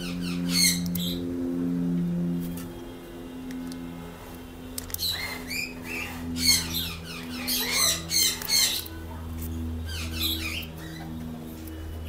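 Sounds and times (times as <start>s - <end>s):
parrots chirping and squeaking: 0.0s - 1.2s, 4.8s - 11.3s.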